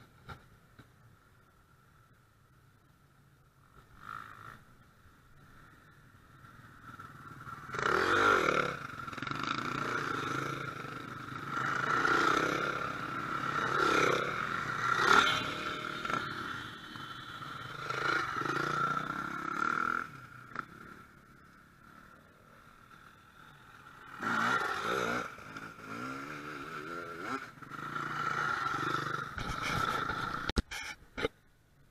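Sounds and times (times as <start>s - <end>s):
dirt bikes riding past: 3.1s - 30.5s.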